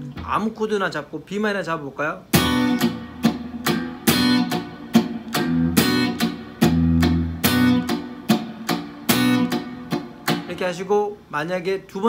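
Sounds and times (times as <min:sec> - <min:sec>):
electric guitar strumming: 0:00.0 - 0:00.5, 0:02.3 - 0:10.8.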